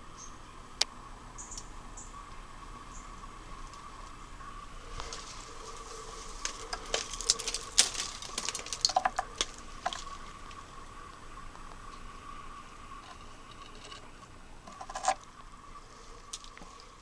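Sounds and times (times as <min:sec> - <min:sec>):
faint steady tone: 0:00.0 - 0:17.0
cable rattling in metal box: 0:05.0 - 0:10.3, 0:14.7 - 0:15.2.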